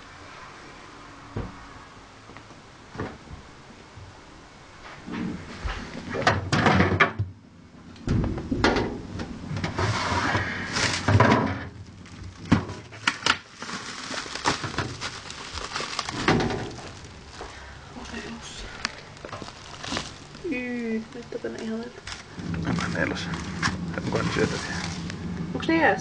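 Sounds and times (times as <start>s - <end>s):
plastic bag rustling: 9.7s - 25.9s.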